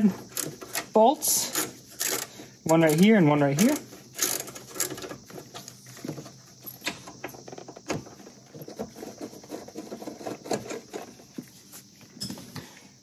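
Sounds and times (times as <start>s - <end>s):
hand tool clicking on bolts: 0.0s - 5.2s.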